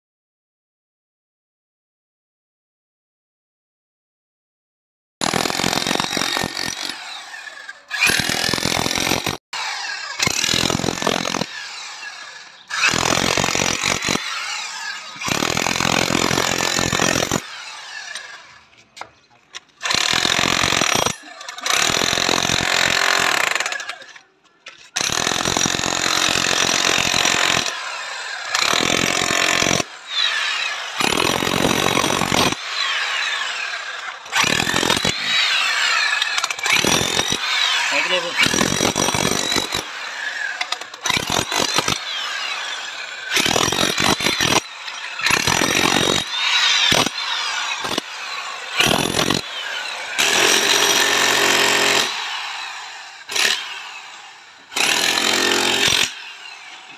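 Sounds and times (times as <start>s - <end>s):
demolition hammer chiselling concrete: 5.2s - 7.2s, 7.9s - 9.4s, 10.1s - 18.2s, 19.8s - 24.1s, 24.9s - 33.5s, 34.3s - 52.2s, 53.2s - 53.8s, 54.7s - 56.6s.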